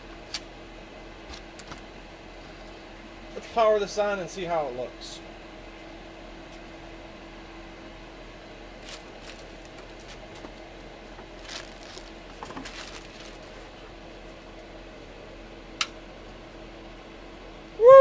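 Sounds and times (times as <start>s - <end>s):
steady low hum: 0.0s - 18.0s
rustling and knocking of handled panel: 11.2s - 13.5s.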